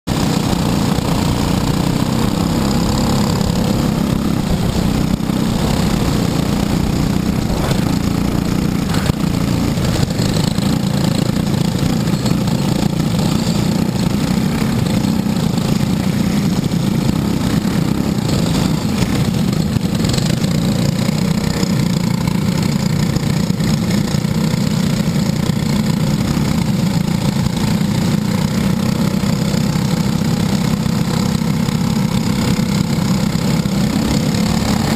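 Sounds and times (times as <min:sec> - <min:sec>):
kart engines running: 0:00.1 - 0:34.9.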